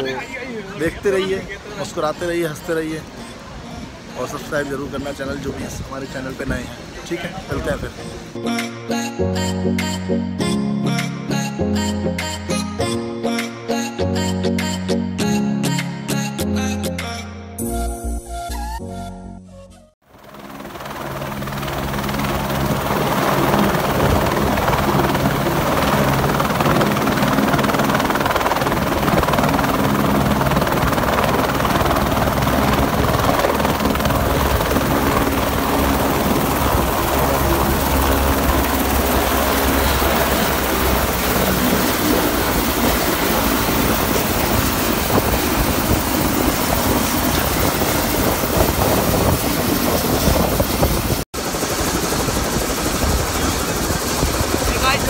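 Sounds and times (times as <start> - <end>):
helicopter engine and rotor: 20.0 - 55.0.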